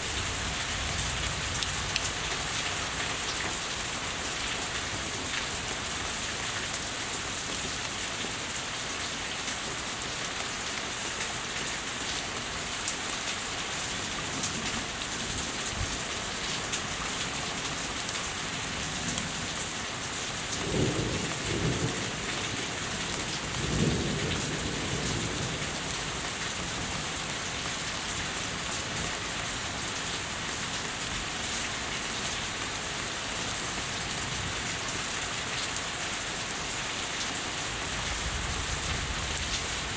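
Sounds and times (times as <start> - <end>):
steady rain falling: 0.0 - 39.9
low rolling thunder: 20.6 - 22.6, 23.5 - 25.9.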